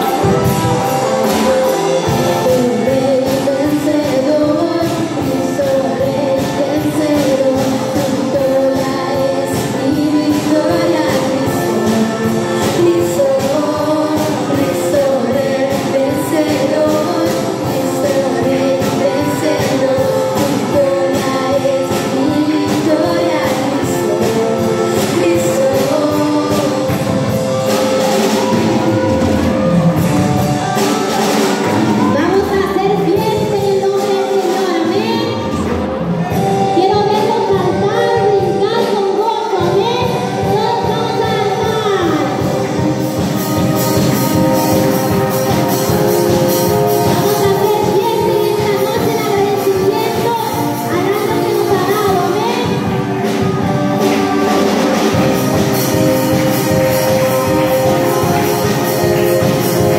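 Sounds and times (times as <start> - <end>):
electric guitar: 0.0 - 59.9
keyboard: 0.0 - 59.9
women singing worship song: 2.3 - 27.1
steady beat: 41.1 - 59.9.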